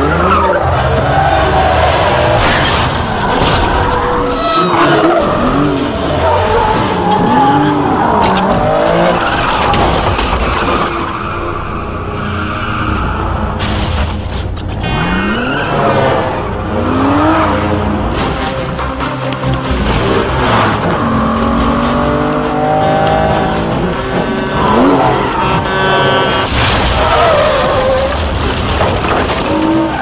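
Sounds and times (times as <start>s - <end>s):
tyres squealing: 0.0s - 11.4s
car engines revving: 0.0s - 30.0s.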